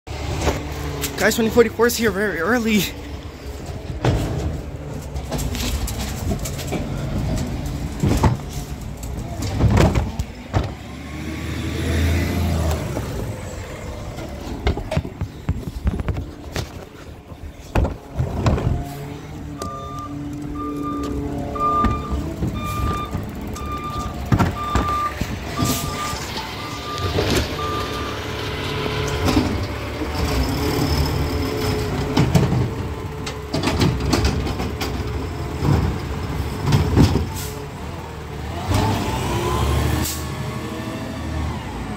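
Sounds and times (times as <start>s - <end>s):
garbage truck running: 0.1s - 41.9s
back-up alarm beeping: 19.6s - 28.3s.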